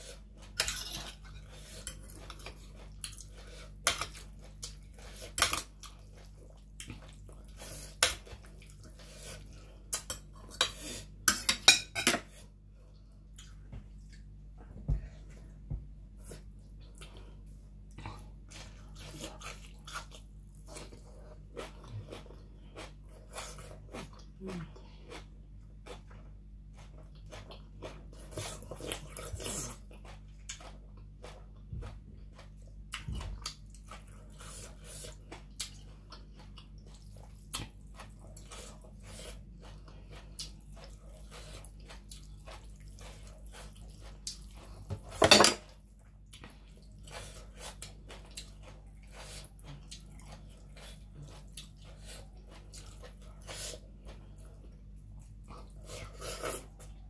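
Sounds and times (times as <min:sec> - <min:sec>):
wet chewing and lip smacking: 0:46.0 - 0:57.0.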